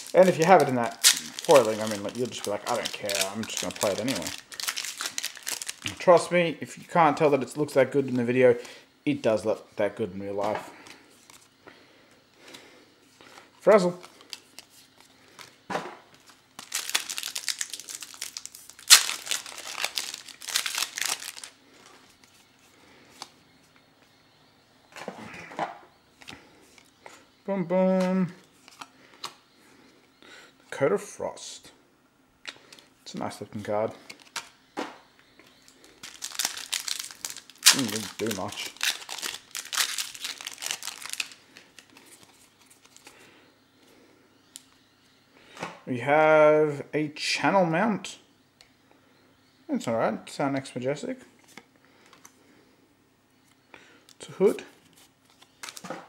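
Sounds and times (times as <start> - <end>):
cards being handled: 0.0 - 6.0, 14.0 - 22.4, 36.0 - 43.2, 54.8 - 56.0
foil pack tearing and crinkling: 0.0 - 6.0, 16.2 - 21.6, 35.9 - 43.1.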